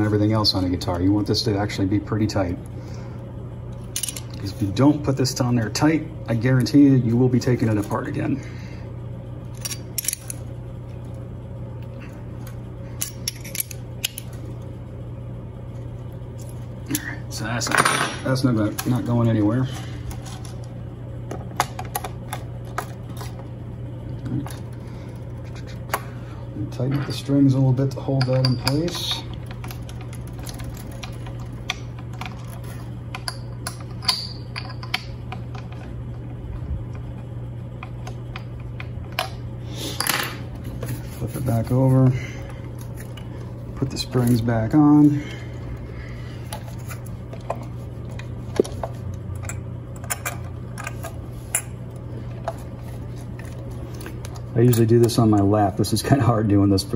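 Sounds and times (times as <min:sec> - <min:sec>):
low hum: 0:00.0 - 0:56.9
clicks of metal bridge parts: 0:09.6 - 0:10.4.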